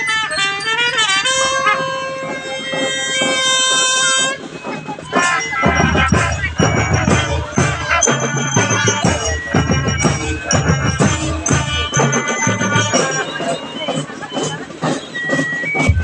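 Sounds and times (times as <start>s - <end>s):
horns playing: 0.0s - 14.3s
glockenspiels ringing: 4.4s - 16.0s
bass drums beating: 5.6s - 13.0s, 15.8s - 16.0s.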